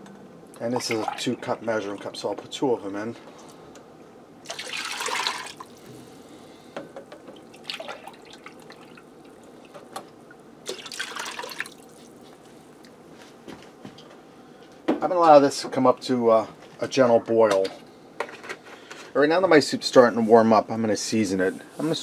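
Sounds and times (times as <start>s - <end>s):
milk pouring and splashing: 0.7s - 2.1s, 4.4s - 5.8s, 7.4s - 9.7s, 10.7s - 12.2s.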